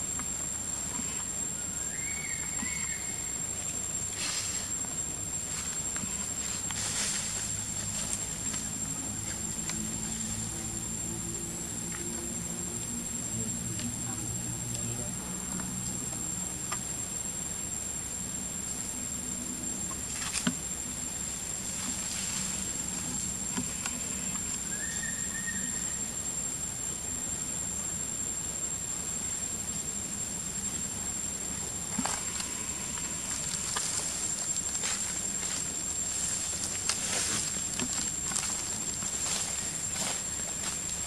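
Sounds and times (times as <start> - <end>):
high-pitched insect drone: 0.0 - 41.0.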